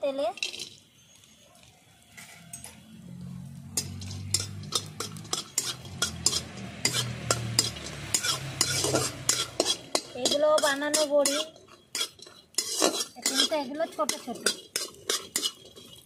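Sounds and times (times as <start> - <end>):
metal spatula scraping a pan: 0.3 - 0.8, 2.1 - 2.8, 3.6 - 16.0
food frying in oil: 3.2 - 16.0.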